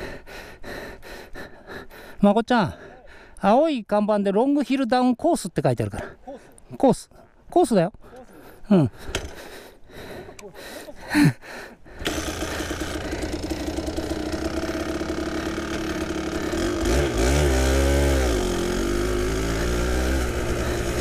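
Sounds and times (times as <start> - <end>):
two-stroke motorcycle engine: 11.9 - 21.0.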